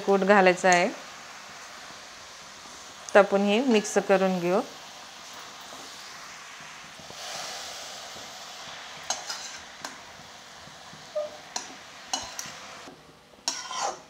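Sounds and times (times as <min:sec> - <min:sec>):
leaves sizzling in a pan: 0:00.0 - 0:14.0
metal spatula scraping pan: 0:03.6 - 0:04.2, 0:09.0 - 0:10.0, 0:11.1 - 0:12.8, 0:13.4 - 0:14.0.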